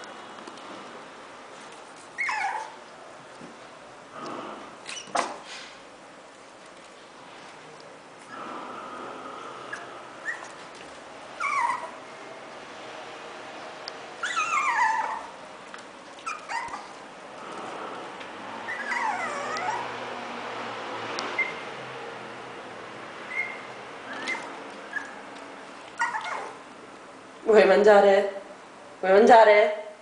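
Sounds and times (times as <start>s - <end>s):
puppy whining: 2.1s - 2.9s, 9.6s - 12.1s, 14.2s - 15.4s, 16.1s - 18.0s, 18.6s - 20.1s, 21.3s - 21.7s, 23.2s - 26.6s.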